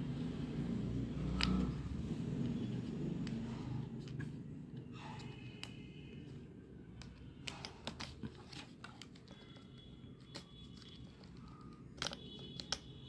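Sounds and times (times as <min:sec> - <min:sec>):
hard plastic clicks and taps: 0:10.3 - 0:12.9.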